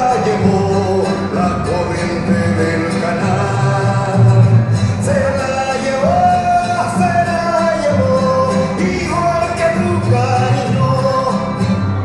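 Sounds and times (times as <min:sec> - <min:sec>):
instrumental accompaniment: 0:00.0 - 0:12.0.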